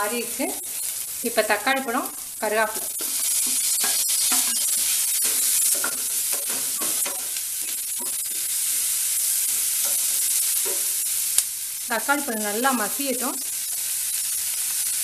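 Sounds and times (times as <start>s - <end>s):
vegetables sizzling in oil: 0.0s - 15.0s
wooden spatula scraping a pan: 1.8s - 11.0s.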